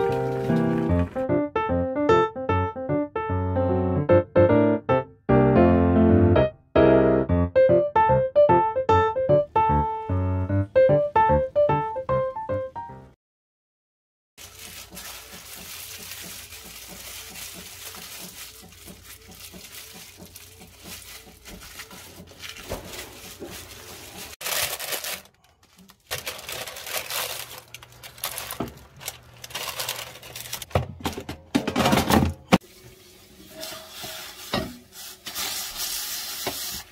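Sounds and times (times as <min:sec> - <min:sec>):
plastic gloves crinkling: 0:00.0 - 0:01.2, 0:14.4 - 0:30.8
rustling paper liner: 0:14.4 - 0:30.7.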